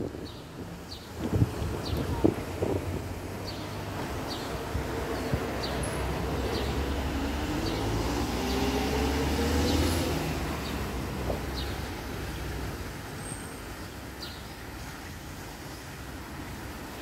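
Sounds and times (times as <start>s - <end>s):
vehicle accelerating past: 5.7s - 11.8s.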